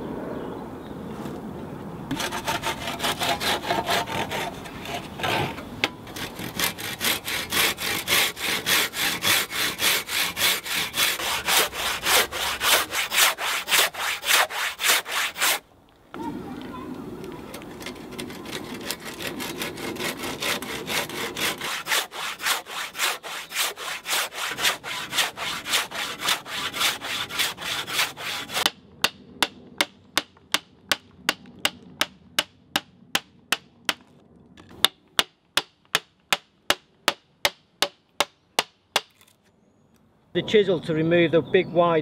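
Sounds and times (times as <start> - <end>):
hand saw cutting log: 2.1 - 15.6, 17.7 - 31.0.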